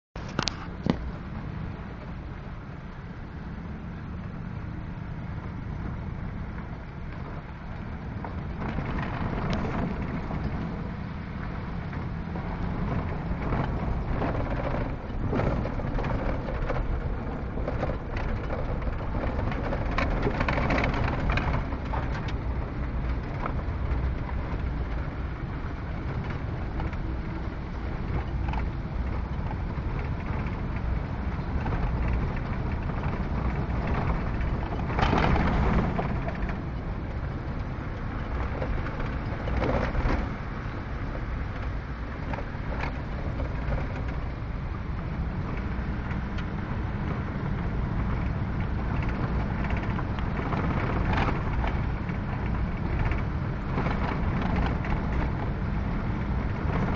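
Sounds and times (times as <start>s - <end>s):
road rumble inside vehicle: 0.0s - 56.9s
clicks and rattles: 8.2s - 40.7s, 41.3s - 56.9s.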